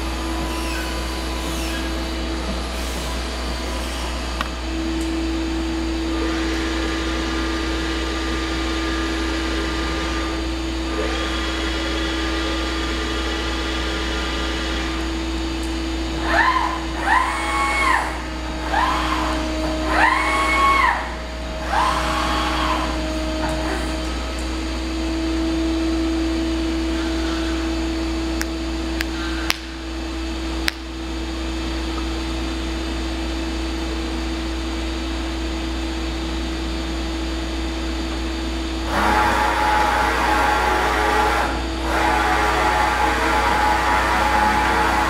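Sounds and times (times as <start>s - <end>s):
servo drives whining: 0.0s - 32.3s, 37.9s - 45.0s
many-toned motor whine: 0.0s - 45.0s
steady machine hum: 0.0s - 45.0s.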